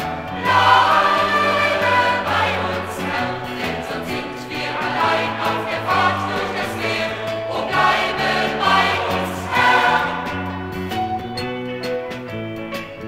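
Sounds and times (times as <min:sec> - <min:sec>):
choir singing a hymn: 0:00.0 - 0:11.0
band accompanying: 0:00.0 - 0:13.0.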